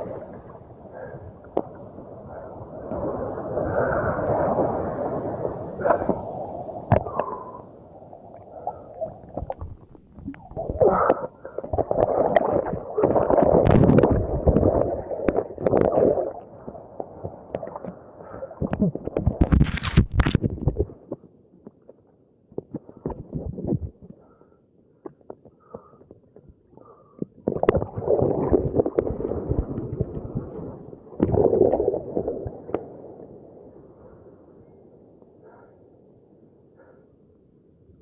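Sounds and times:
seawater sloshing and gurgling: 8.5 - 21.0.

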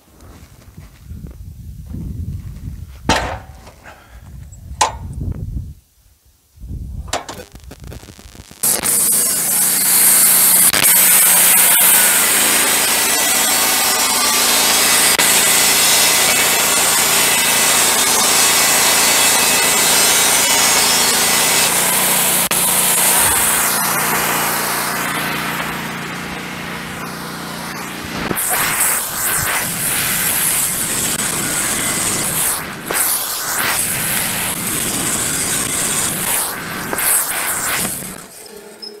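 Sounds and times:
bandsaw blade cutting wood: 3.1 - 4.0, 8.6 - 38.6
sawmill engine under load: 8.8 - 38.7.

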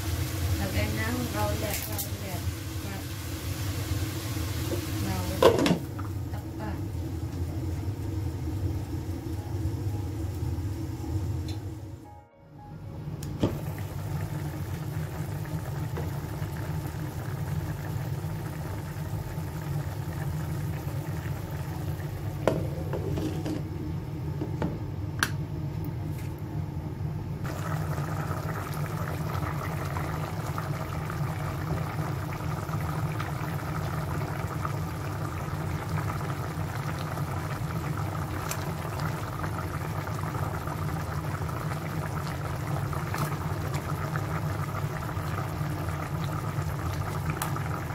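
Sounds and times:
stew bubbling in pot: 13.6 - 23.6, 27.4 - 47.9.

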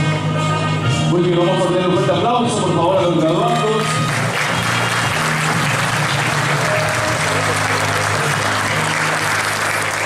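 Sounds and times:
audience applauding: 3.5 - 10.0.

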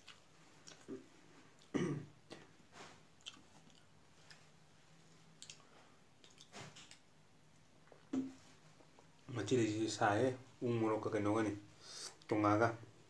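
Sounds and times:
person chewing: 0.0 - 1.7, 2.3 - 8.2
mouth smacks and clicks: 0.0 - 2.5, 3.2 - 4.5, 5.4 - 7.1.

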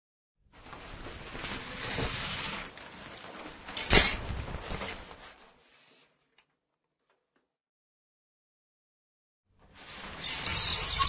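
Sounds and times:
shower curtain rustling swish: 0.6 - 6.2, 9.6 - 11.0
shower curtain clack: 0.8 - 5.4.

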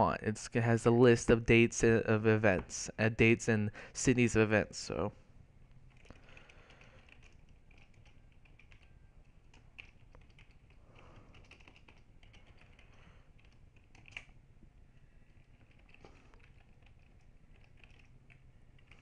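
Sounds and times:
typing on computer keyboard: 5.9 - 14.4, 15.4 - 19.0.

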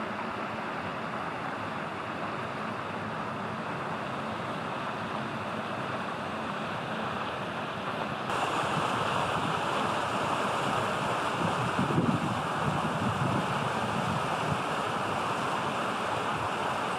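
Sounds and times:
wind rushing: 8.5 - 14.6.

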